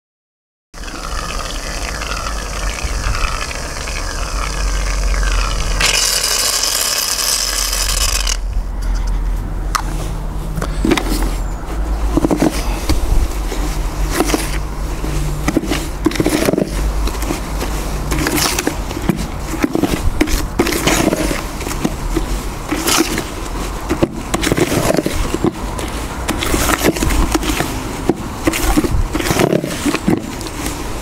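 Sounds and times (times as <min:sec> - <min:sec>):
trowel scraping cement in bucket: 0:02.9 - 0:08.5, 0:12.1 - 0:12.8, 0:14.0 - 0:30.8.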